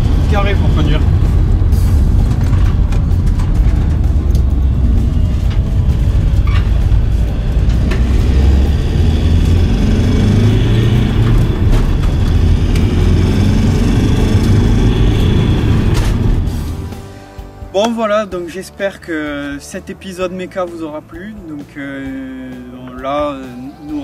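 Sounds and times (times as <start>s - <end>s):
diesel engine rumble: 0.0s - 17.7s
tyres on the road: 0.0s - 18.9s.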